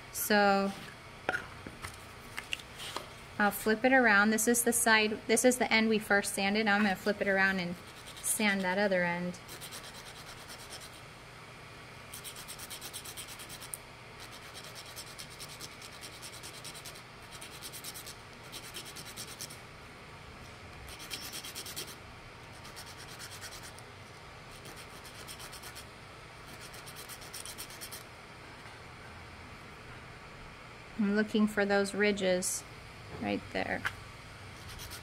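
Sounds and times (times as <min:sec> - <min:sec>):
dowel sanded on sandpaper: 0:07.8 - 0:08.8, 0:09.5 - 0:11.0, 0:12.2 - 0:19.6, 0:20.9 - 0:23.8, 0:24.5 - 0:25.8, 0:26.5 - 0:28.0, 0:34.6 - 0:35.0.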